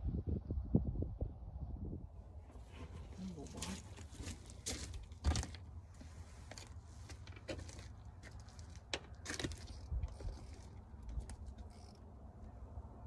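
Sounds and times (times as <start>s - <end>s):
fishing reel clicks and rattles: 9.3s - 12.2s.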